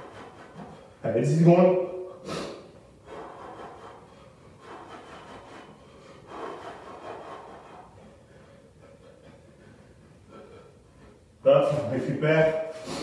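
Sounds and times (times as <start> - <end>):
man breathing hard and rasping: 0.0 - 13.0
sharp exhaled hiss: 2.2 - 3.9, 12.7 - 13.0.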